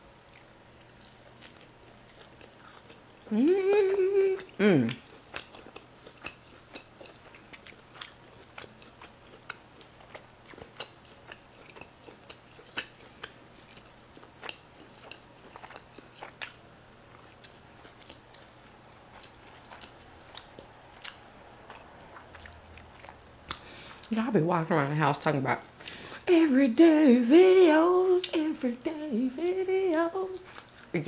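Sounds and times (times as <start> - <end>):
person chewing food: 0.0 - 24.1, 30.4 - 31.0.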